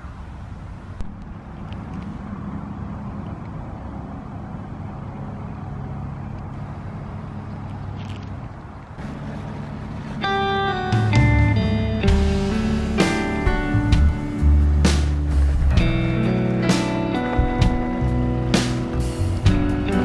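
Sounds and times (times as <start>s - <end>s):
vehicle engine hum: 0.0s - 20.0s
acoustic guitar music: 9.0s - 20.0s.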